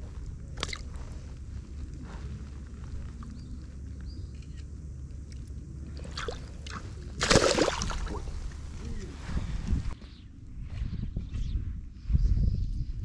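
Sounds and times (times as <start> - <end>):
low steady rumble: 0.0 - 13.0
fish splashing in shallow water: 6.0 - 8.8.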